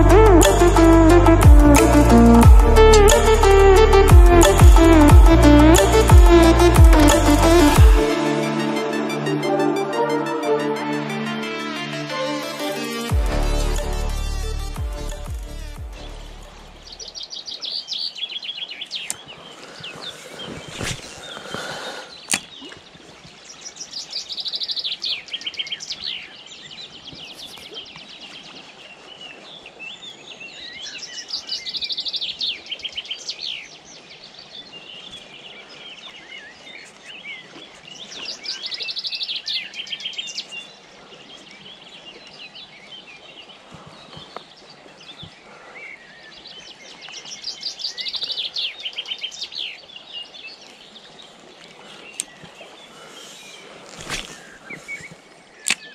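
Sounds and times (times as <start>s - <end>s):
river water flowing: 0.0s - 55.9s
songbird singing: 15.9s - 55.9s.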